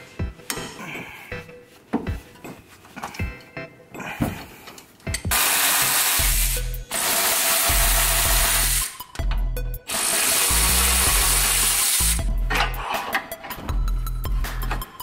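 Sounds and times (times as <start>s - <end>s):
background music with bass line: 0.0s - 7.0s, 7.7s - 15.0s
electric ratchet spinning: 5.3s - 9.0s, 9.9s - 12.2s.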